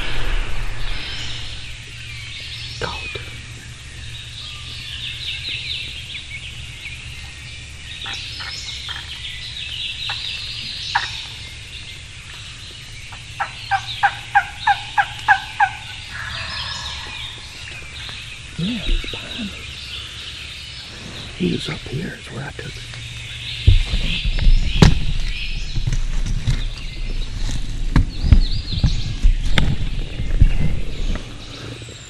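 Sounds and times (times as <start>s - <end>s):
songbirds chirping: 0.0s - 32.0s
turkey call yelps: 13.4s - 17.5s.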